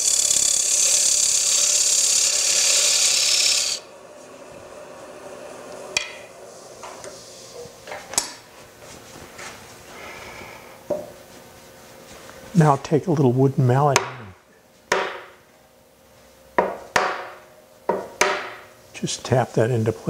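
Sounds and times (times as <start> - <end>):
scraper cutting spinning wood: 0.0 - 3.9.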